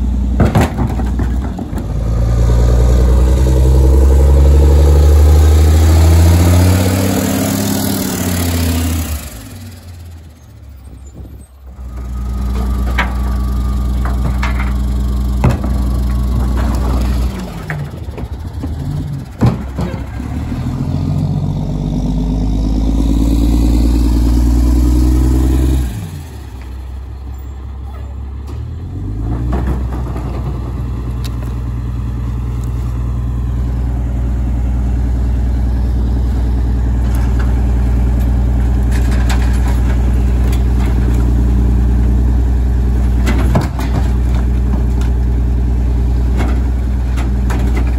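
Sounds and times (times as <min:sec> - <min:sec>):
garbage truck diesel engine: 0:00.0 - 0:47.9
bins knocking: 0:00.4 - 0:01.9.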